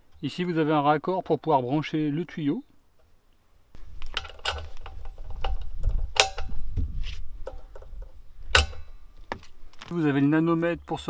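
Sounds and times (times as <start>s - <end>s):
small metallic clicks and knocks: 3.8s - 6.8s, 7.4s - 10.3s.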